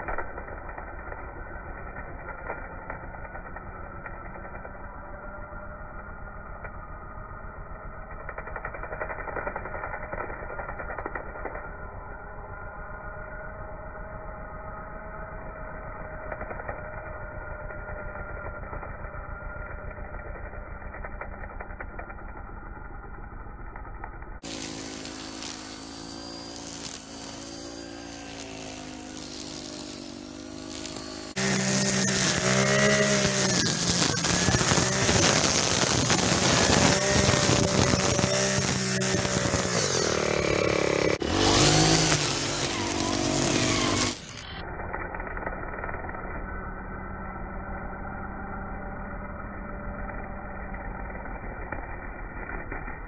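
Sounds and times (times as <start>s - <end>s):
string trimmer engine running: 24.4s - 44.6s
trimmer line cutting grass: 24.4s - 52.7s.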